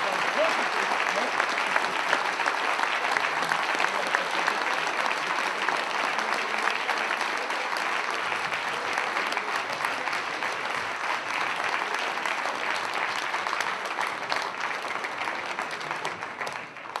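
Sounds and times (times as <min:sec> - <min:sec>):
audience applauding: 0:00.0 - 0:17.0.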